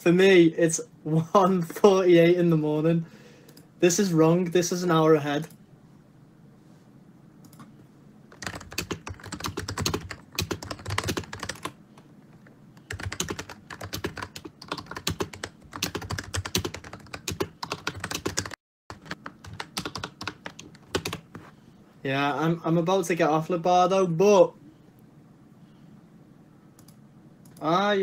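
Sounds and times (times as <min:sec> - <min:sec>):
rapid typing on keyboard: 0:08.3 - 0:21.4.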